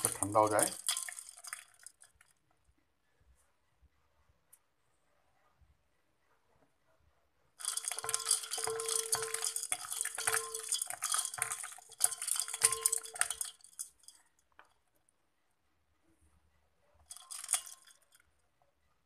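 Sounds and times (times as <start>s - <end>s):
ice cubes clattering in a bowl: 0.0s - 2.1s, 7.6s - 14.2s, 17.1s - 18.1s.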